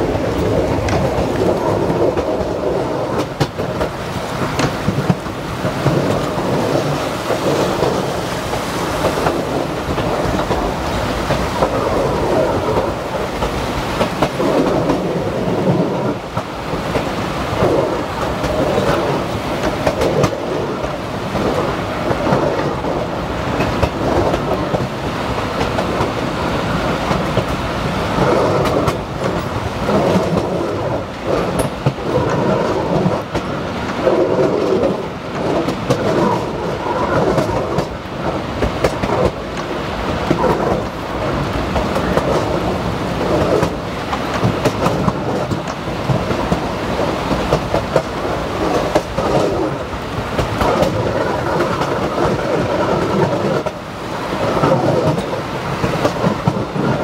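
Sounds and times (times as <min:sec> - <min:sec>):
train car rumbling: 0:00.0 - 0:57.0.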